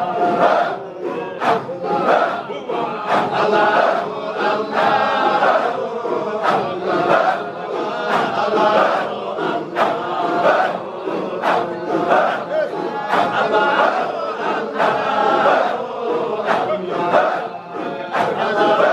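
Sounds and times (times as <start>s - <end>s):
crowd of men chanting: 0.0s - 18.9s.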